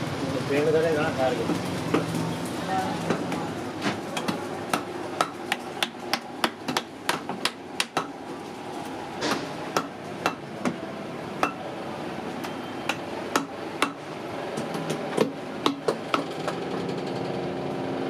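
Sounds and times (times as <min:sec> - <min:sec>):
hammer striking steel chisel: 0:11.4 - 0:11.6.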